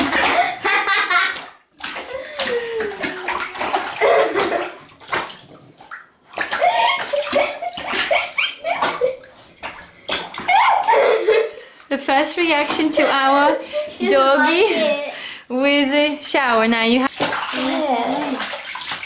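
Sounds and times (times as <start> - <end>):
bathwater splashing and sloshing: 0.0 - 19.0.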